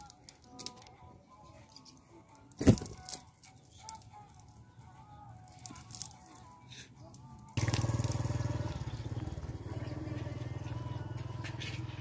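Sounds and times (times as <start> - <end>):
small engine running: 7.6 - 12.0.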